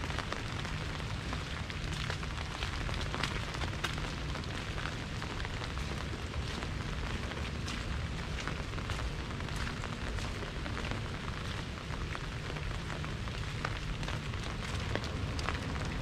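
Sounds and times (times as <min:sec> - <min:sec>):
low rumble: 0:00.0 - 0:16.0
rain on umbrella: 0:00.0 - 0:16.0.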